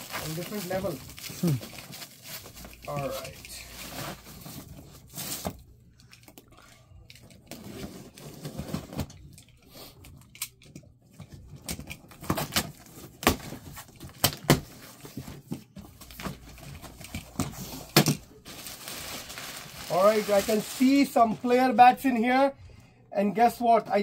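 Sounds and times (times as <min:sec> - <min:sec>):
plastic wrap crinkling and tearing: 0:00.0 - 0:05.6, 0:17.6 - 0:21.7.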